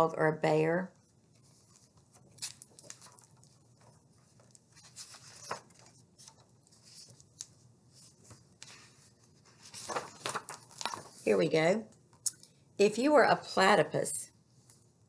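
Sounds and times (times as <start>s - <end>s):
book pages turning: 1.3s - 11.3s.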